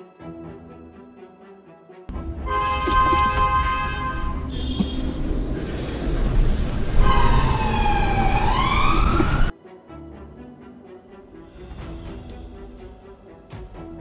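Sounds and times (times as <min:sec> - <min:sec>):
road and engine noise: 0:02.1 - 0:09.5
emergency vehicle siren wailing: 0:02.6 - 0:09.5.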